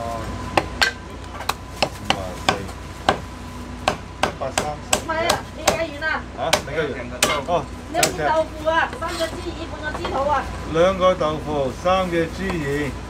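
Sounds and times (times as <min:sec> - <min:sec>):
cleaver chopping on wooden block: 0:00.6 - 0:03.2, 0:03.8 - 0:05.9.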